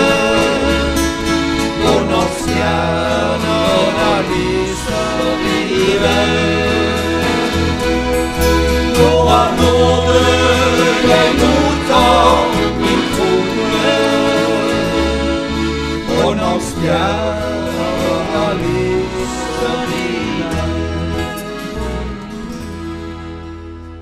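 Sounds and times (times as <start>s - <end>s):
person singing: 0.0s - 7.7s, 8.8s - 22.5s
accordion: 0.0s - 24.0s
acoustic guitars: 0.0s - 24.0s
electric bass: 0.0s - 24.0s.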